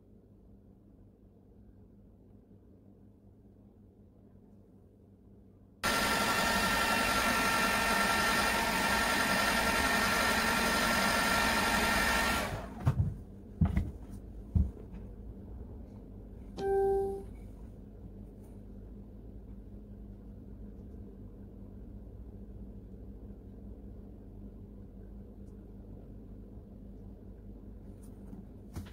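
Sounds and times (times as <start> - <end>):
heat gun blowing: 5.8 - 12.8
brief tone: 16.6 - 17.5.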